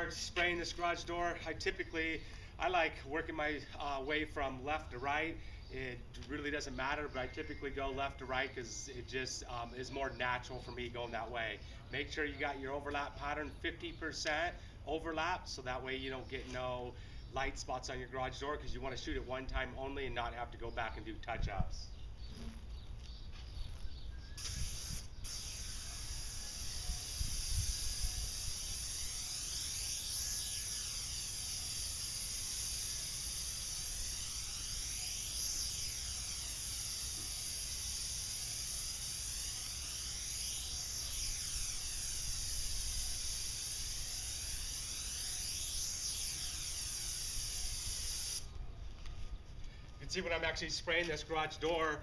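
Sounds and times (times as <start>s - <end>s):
paint sprayer hissing: 24.4s - 48.6s.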